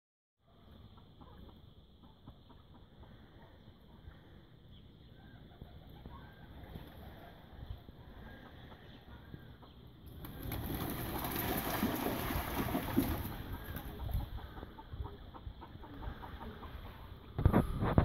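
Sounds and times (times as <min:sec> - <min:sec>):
birds calling: 0:00.7 - 0:17.7
flapping wings: 0:10.1 - 0:14.2.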